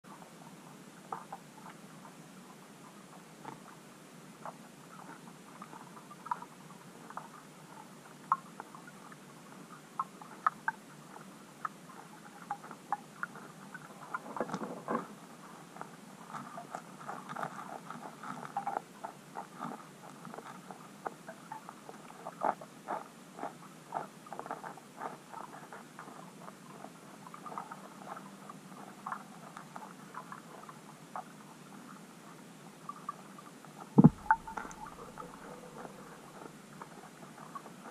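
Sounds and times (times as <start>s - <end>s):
underwater clicks and pops: 34.0s - 35.5s.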